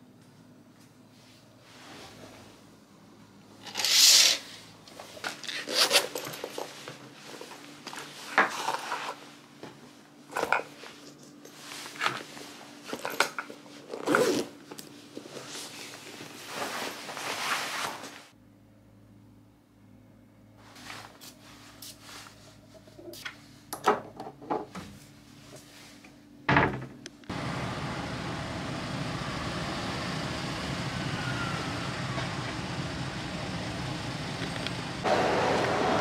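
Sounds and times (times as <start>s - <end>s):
zipper: 14.0s - 14.6s.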